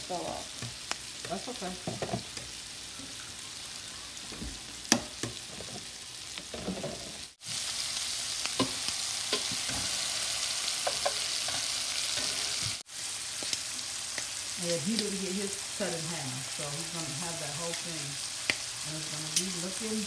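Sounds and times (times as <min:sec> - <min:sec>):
shrimp sizzling in butter: 0:00.0 - 0:20.0.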